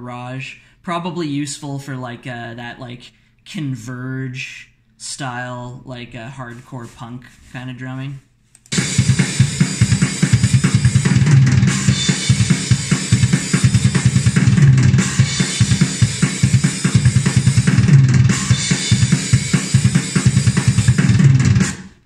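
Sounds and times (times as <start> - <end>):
cymbals: 8.7 - 21.9
snare drum: 8.7 - 22.0
kick drum: 8.8 - 21.7.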